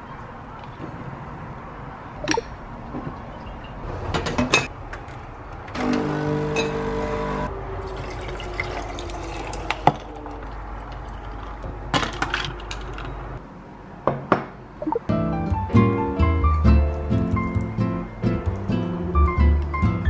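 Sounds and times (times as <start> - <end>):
liquid pouring into a glass: 7.9 - 10.4.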